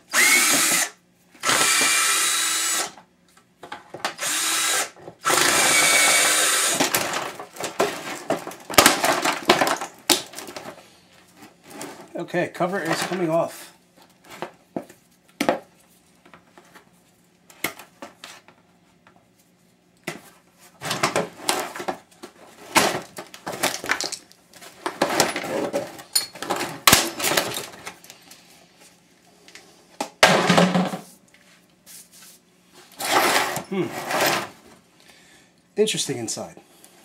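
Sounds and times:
plastic parts clattering: 6.7s - 10.8s, 11.4s - 13.4s, 20.8s - 28.2s.

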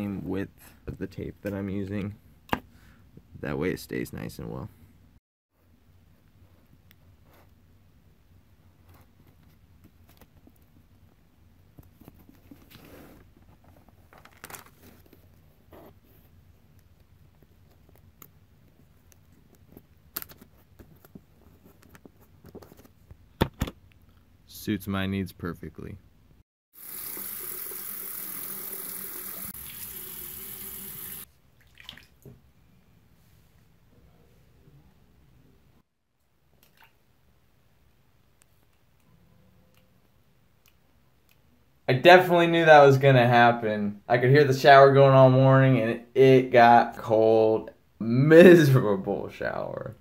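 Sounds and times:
paper rustling and crinkling: 11.8s - 15.5s
faucet water splashing into basin: 26.8s - 32.2s.

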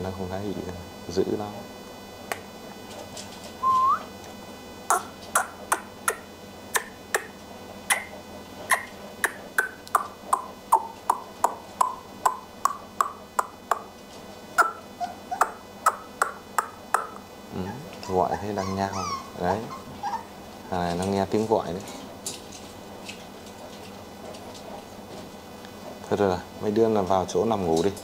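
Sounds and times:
person whistling: 3.6s - 4.1s
squeaky kissing sounds: 4.9s - 7.3s, 7.9s - 9.8s.

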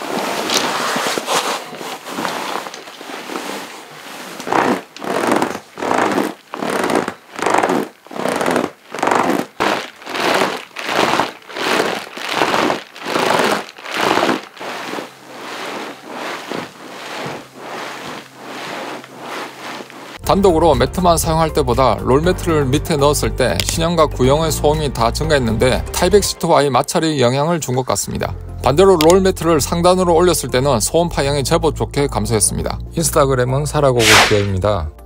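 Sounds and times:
air sleeping pad crinkling: 0.0s - 20.2s.

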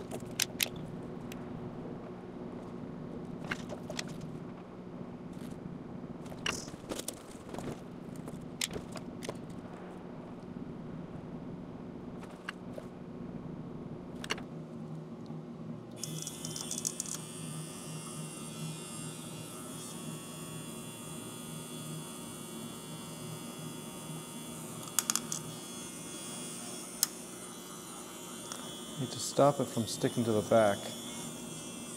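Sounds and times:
small gear motor whirring: 16.0s - 31.9s.

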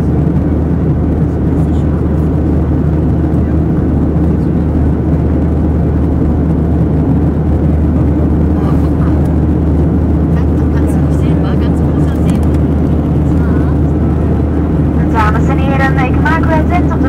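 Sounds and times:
jet engines roaring: 0.0s - 17.0s
rushing air: 0.0s - 17.0s.

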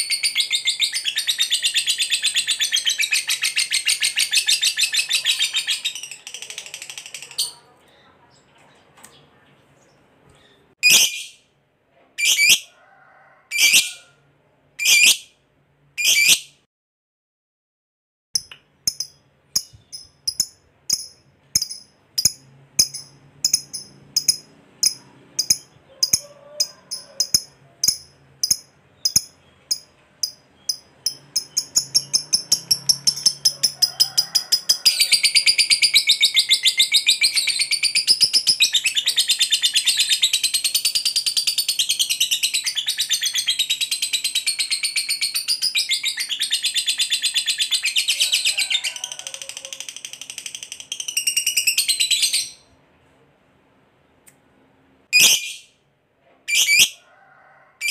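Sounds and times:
lovebird chattering trill: 0.0s - 7.6s, 14.8s - 15.2s, 18.4s - 33.8s
lovebird chirping: 0.0s - 8.5s, 9.1s - 11.4s, 14.8s - 15.3s, 18.4s - 33.8s, 55.2s - 55.7s.

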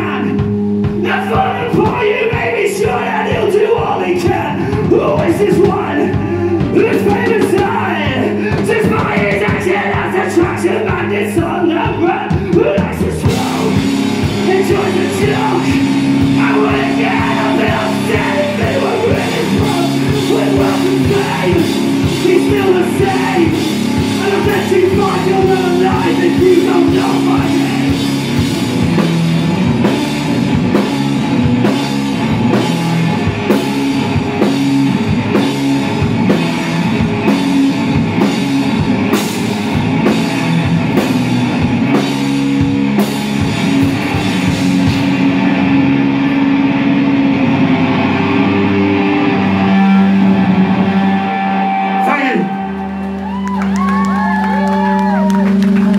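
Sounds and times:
drum kit: 0.0s - 52.1s
electric guitar: 0.0s - 55.9s
man singing: 1.0s - 28.1s.

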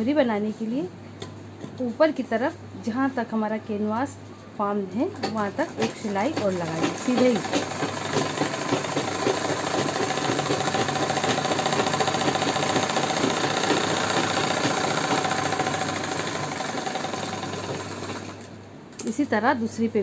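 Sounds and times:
sewing machine running: 5.2s - 18.5s.

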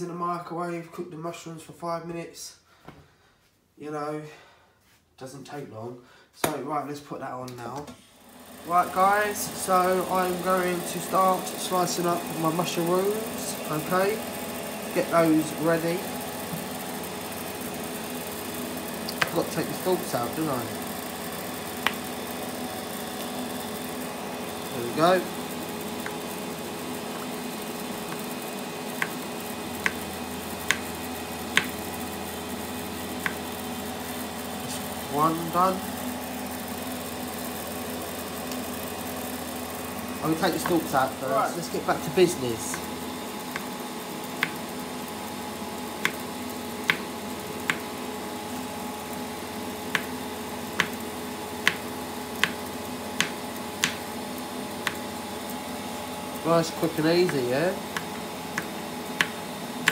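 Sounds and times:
steady appliance hum: 0.0s - 59.9s
knife tapping chopping board: 19.1s - 19.4s, 29.0s - 29.2s, 29.8s - 30.0s, 30.7s - 30.9s, 31.6s - 31.8s, 33.2s - 33.4s, 43.5s - 43.7s, 44.4s - 44.6s, 46.9s - 47.1s, 49.9s - 50.1s, 50.8s - 51.0s, 51.6s - 51.8s, 52.4s - 52.6s, 53.2s - 54.0s, 54.8s - 55.0s, 58.0s - 59.9s.

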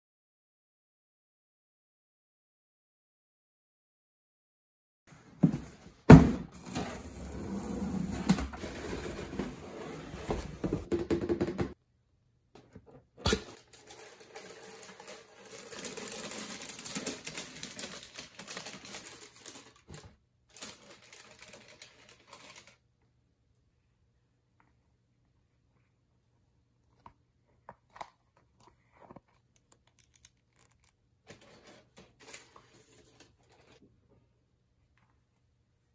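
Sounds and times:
tissue paper crinkling: 13.6s - 22.8s.

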